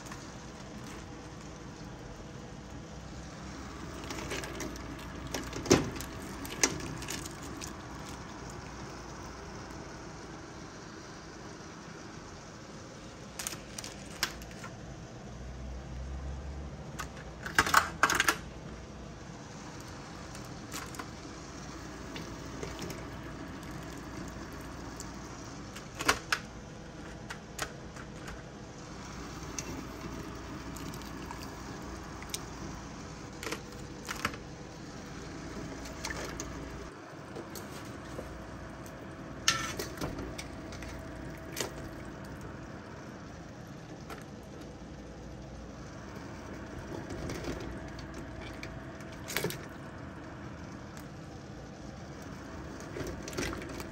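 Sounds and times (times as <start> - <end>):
steaming pot hissing: 0.0 - 13.9, 19.3 - 25.8, 28.6 - 44.0.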